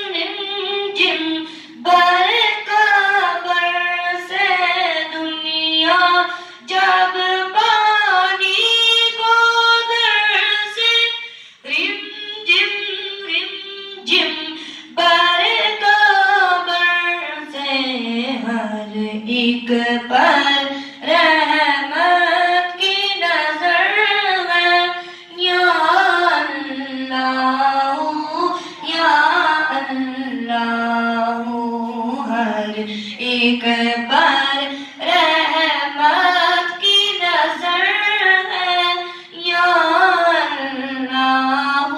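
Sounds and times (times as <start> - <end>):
boy singing unaccompanied: 0.0 - 41.9.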